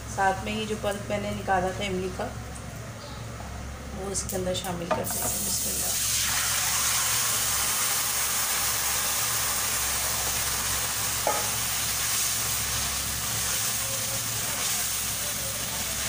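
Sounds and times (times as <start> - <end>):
food sizzling in hot oil: 5.0 - 16.0.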